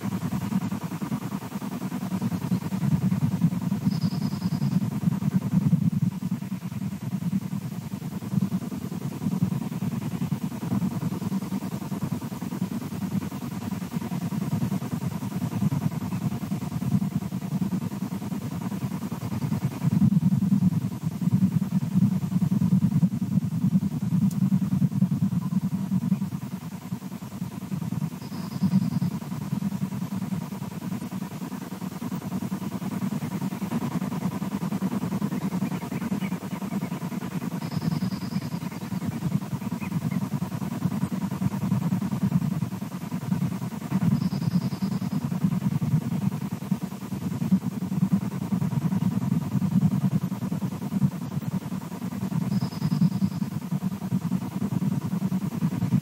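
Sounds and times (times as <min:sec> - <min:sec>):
faint steady hum: 0:00.0 - 0:56.0
low waffling rumble: 0:00.0 - 0:56.0
low fluttering throb: 0:14.1 - 0:51.7.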